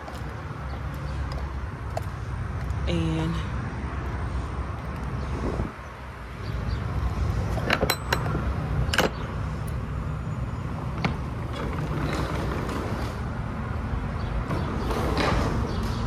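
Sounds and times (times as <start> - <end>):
wind rumble on microphone: 3.7 - 9.0
metal latch clanking: 7.6 - 9.2
roll-up door sliding up: 11.0 - 13.3.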